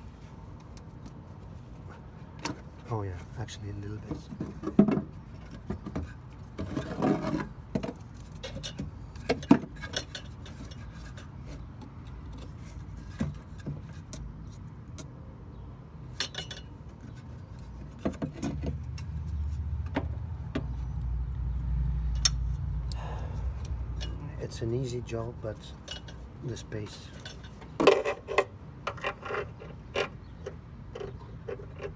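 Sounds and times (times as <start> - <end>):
metallic clicks and knocks: 22.0 - 22.6.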